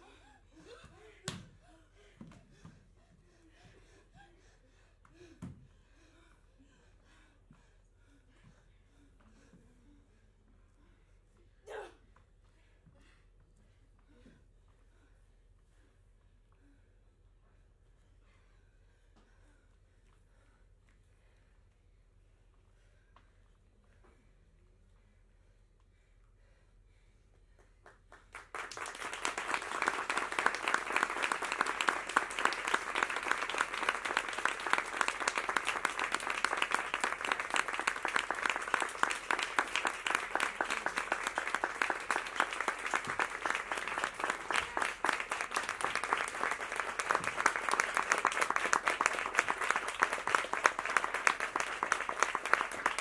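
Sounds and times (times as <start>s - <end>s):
audience applauding: 28.1s - 53.0s.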